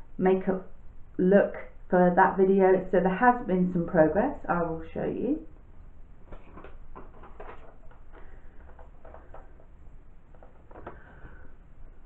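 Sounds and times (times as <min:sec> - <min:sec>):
paper rustling: 0:06.2 - 0:11.6
objects being handled: 0:06.2 - 0:12.0.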